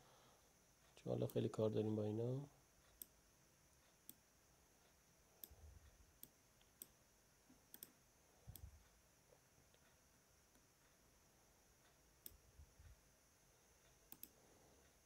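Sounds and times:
mouse clicks: 0:03.8 - 0:04.2, 0:06.2 - 0:07.0, 0:07.7 - 0:08.7, 0:14.1 - 0:14.4.

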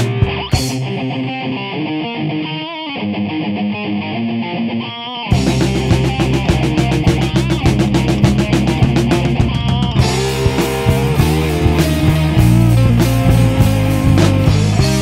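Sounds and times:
drum kit beat: 0:00.0 - 0:01.2, 0:05.3 - 0:15.0
bass guitar: 0:00.0 - 0:15.0
electric guitar: 0:00.0 - 0:15.0.

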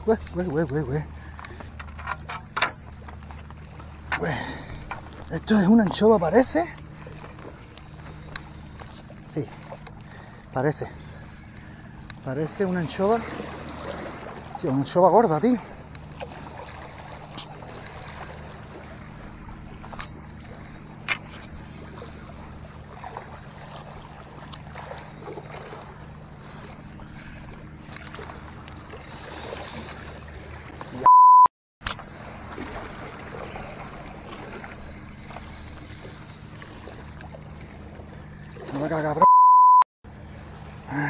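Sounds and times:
steady low hum: 0:00.0 - 0:31.1, 0:31.9 - 0:39.3
steady-pitch beep: 0:31.0 - 0:31.5, 0:39.2 - 0:39.8.

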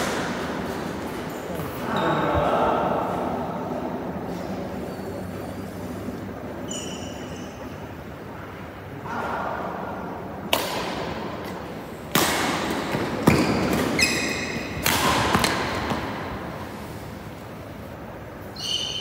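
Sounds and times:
court shoes squeaking: 0:00.0 - 0:02.6, 0:04.2 - 0:08.2, 0:11.8 - 0:16.9, 0:18.4 - 0:19.0
racket striking shuttlecock: 0:10.5 - 0:16.4.

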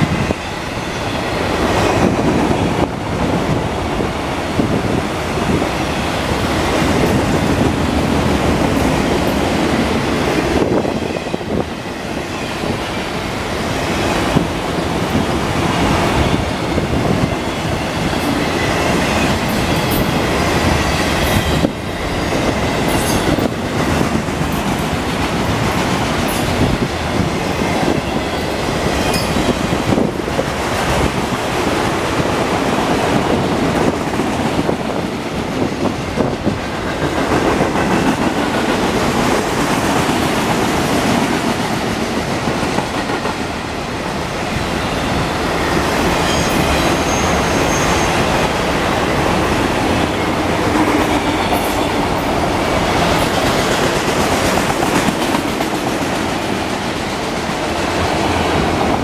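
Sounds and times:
train wheels rumbling on rails: 0:00.0 - 0:59.0
high wheel squeals: 0:45.6 - 0:48.3.

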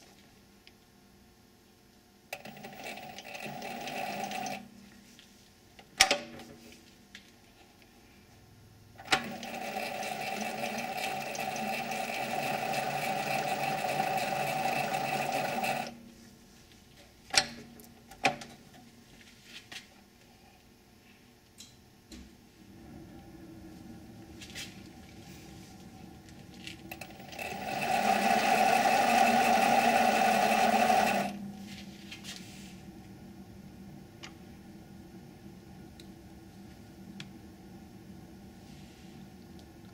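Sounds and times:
lathe running: 0:09.2 - 0:15.9, 0:26.9 - 0:31.5.

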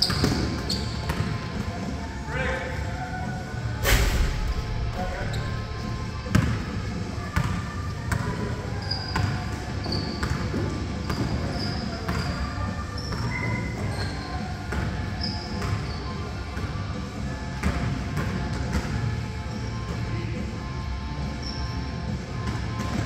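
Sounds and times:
sneakers squeaking on hardwood: 0:00.0 - 0:01.7, 0:05.2 - 0:16.2, 0:21.4 - 0:21.8
basketball bouncing on floor: 0:06.2 - 0:06.7.

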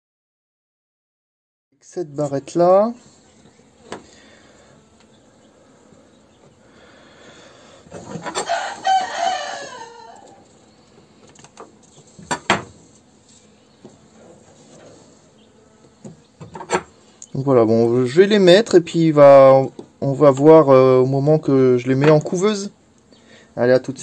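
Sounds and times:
rooster crowing: 0:08.1 - 0:10.5.

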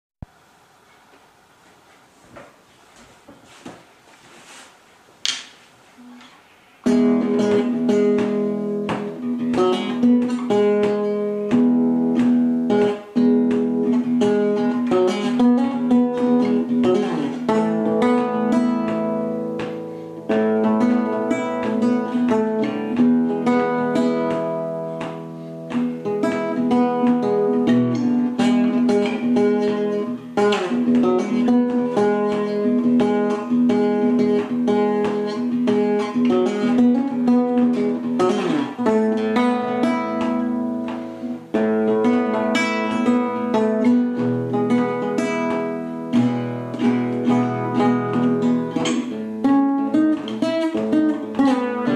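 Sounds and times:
classical guitar fingerstyle: 0:06.0 - 0:51.9.

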